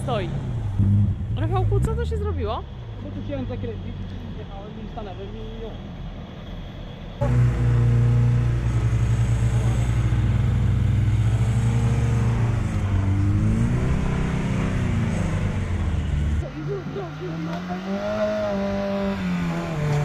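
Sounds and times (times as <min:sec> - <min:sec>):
car engine pulling hard: 0:07.1 - 0:20.0.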